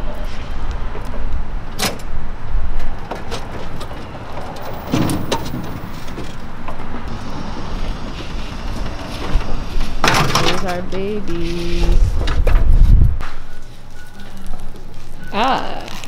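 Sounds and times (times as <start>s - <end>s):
metal clanks and rattles: 2.8s - 7.1s, 8.7s - 11.0s.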